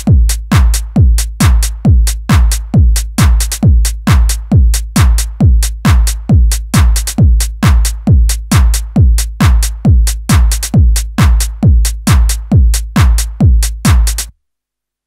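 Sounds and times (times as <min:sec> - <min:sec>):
electronic house music: 0:00.0 - 0:14.3.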